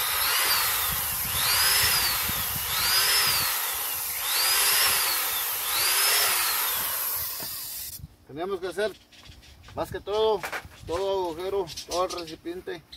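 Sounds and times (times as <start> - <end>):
electric drill boring plastic: 0.0 - 8.0.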